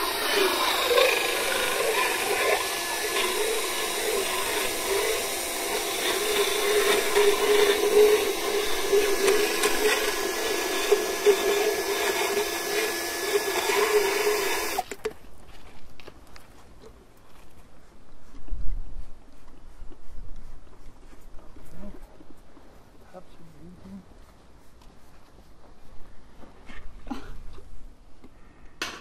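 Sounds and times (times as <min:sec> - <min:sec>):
motor whine with rough grinding: 0:00.0 - 0:15.0.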